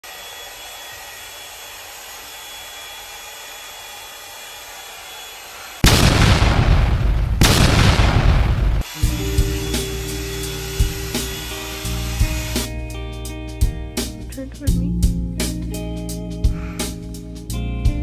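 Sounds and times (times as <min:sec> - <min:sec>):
loud rushing with deep rumble: 0:05.8 - 0:08.8.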